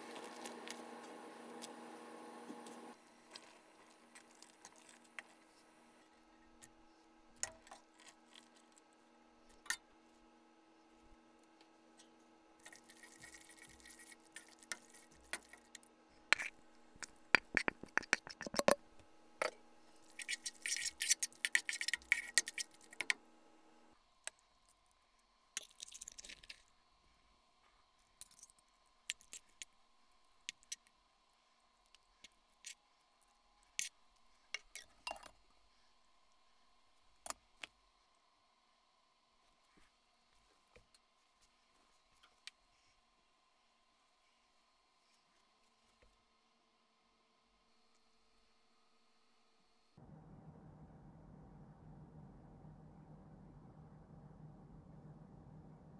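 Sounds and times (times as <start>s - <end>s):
steady hum: 0.0s - 4.2s, 50.0s - 55.9s.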